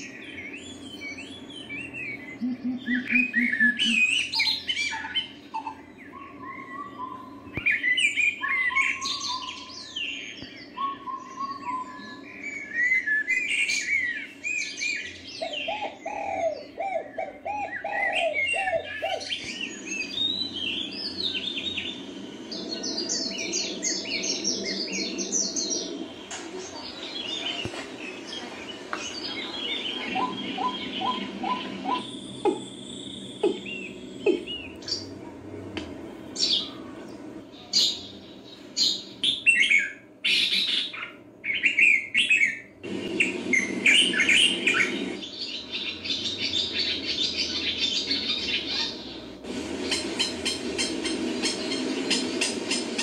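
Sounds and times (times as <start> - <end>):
wild birds chirping and trilling: 0.0 - 53.0
bird calling low repeated notes: 0.6 - 9.7.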